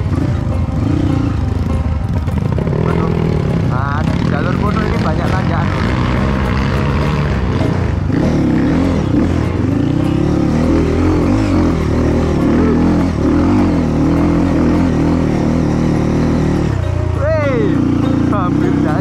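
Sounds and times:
dirt bike engine revving: 0:00.0 - 0:19.0.

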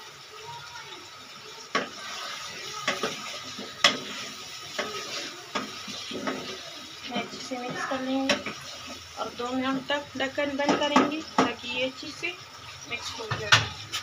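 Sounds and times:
food sizzling: 0:00.0 - 0:14.0
wooden spatula knocking on pan: 0:01.7 - 0:02.0, 0:02.8 - 0:06.5, 0:07.2 - 0:08.6, 0:10.6 - 0:11.6.

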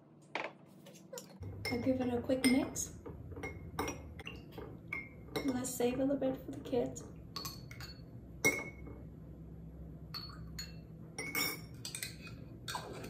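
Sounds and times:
metal spoon clinking glass jar: 0:10.2 - 0:12.8.

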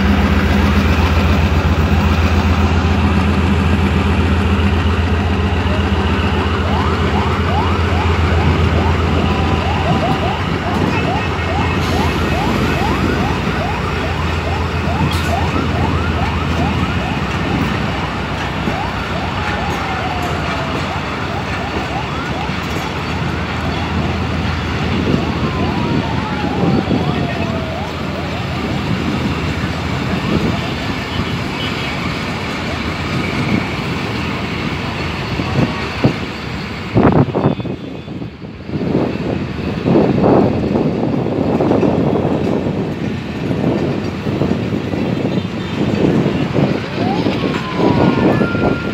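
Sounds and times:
train wheels rumbling on track: 0:00.0 - 0:48.9
metallic squeals from train: 0:35.6 - 0:39.2.

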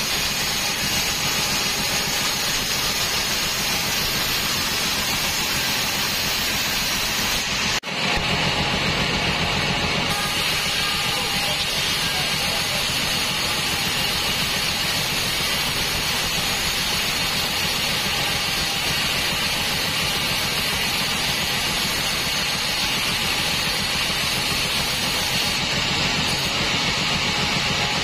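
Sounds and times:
bandsaw blade cutting wood: 0:00.0 - 0:08.3, 0:10.1 - 0:28.0
machine hum: 0:00.0 - 0:19.6.

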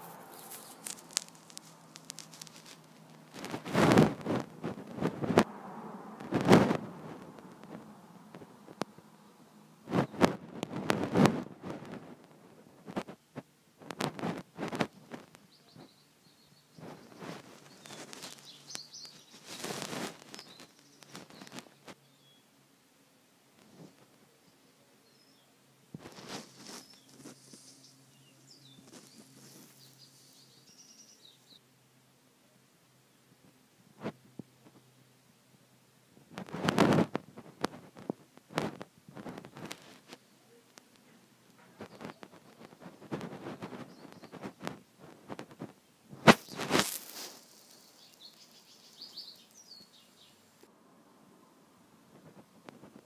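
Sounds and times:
paper snap: 0:00.0 - 0:04.5
paper pages turning: 0:00.0 - 0:05.5, 0:46.3 - 0:48.4
faint steady low hum: 0:00.0 - 0:53.0
faint high bird chirps: 0:15.4 - 0:22.6, 0:24.3 - 0:25.7, 0:26.4 - 0:31.7, 0:41.6 - 0:42.6, 0:43.6 - 0:44.6, 0:46.4 - 0:50.4
faint high chirps: 0:26.6 - 0:31.7, 0:47.2 - 0:50.5.

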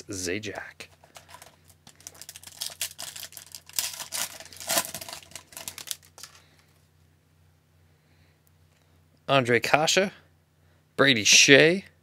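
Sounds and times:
foil wrapper tearing and crinkling: 0:01.1 - 0:06.4.

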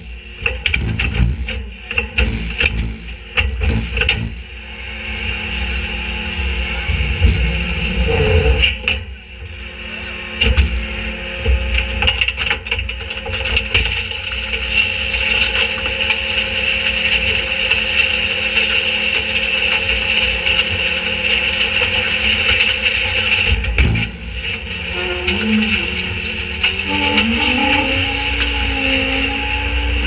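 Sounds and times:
high hydraulic whine: 0:00.0 - 0:04.6, 0:07.2 - 0:11.1, 0:23.5 - 0:27.2.

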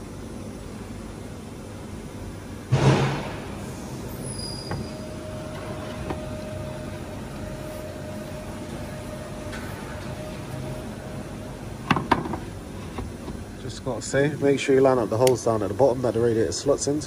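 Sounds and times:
steady low hum: 0:00.0 - 0:17.0
sharp clunk: 0:02.7 - 0:03.5.

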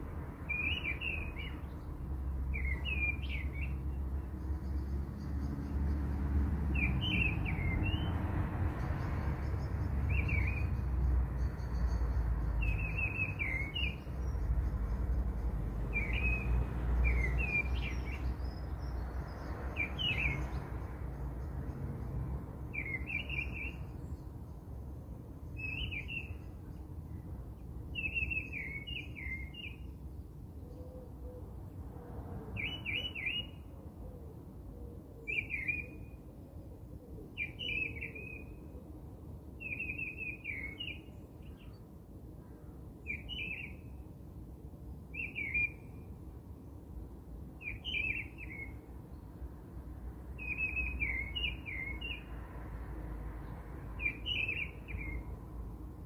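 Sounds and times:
bird chirping: 0:00.4 - 0:06.1, 0:06.7 - 0:08.2, 0:08.8 - 0:22.1, 0:22.7 - 0:24.6, 0:25.4 - 0:31.2, 0:32.6 - 0:33.7, 0:35.2 - 0:36.2, 0:37.3 - 0:38.8, 0:39.6 - 0:42.0, 0:43.0 - 0:44.0, 0:45.1 - 0:46.1, 0:47.6 - 0:49.3, 0:50.4 - 0:52.4, 0:53.4 - 0:55.4.

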